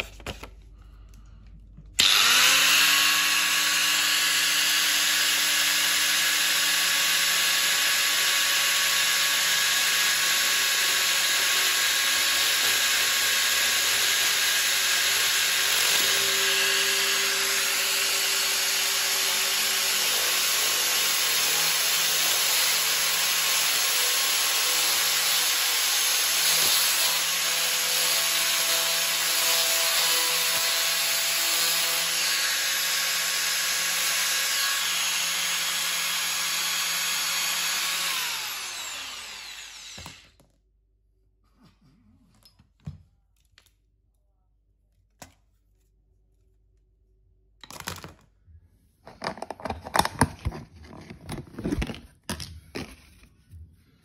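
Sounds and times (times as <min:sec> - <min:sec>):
angle grinder whine: 0:02.0 - 0:22.7, 0:23.3 - 0:40.3.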